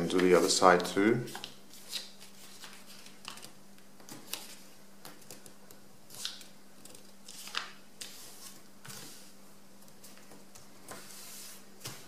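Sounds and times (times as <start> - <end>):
paper being folded: 0.1 - 5.5, 6.1 - 9.3.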